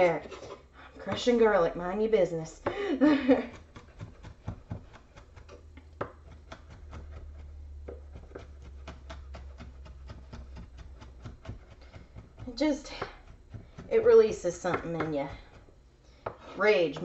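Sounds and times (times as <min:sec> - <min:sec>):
knife chopping on wooden board: 0:03.5 - 0:17.0.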